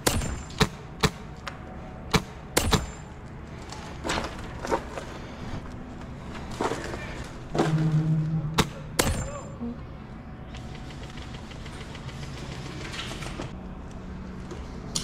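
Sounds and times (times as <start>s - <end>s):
airsoft rifle shots: 0.0s - 1.3s, 2.1s - 3.1s, 8.6s - 9.5s.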